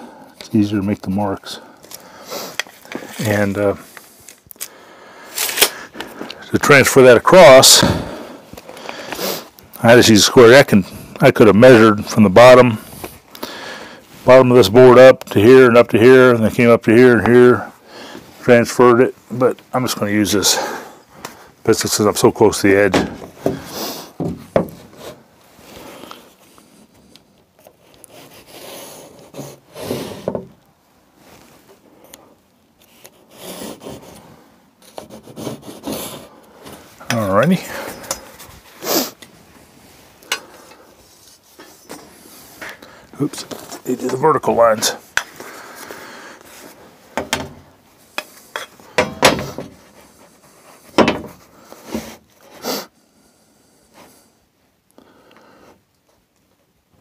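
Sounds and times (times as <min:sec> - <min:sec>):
pencil scraping along metal square: 0:27.8 - 0:30.2, 0:32.9 - 0:36.3.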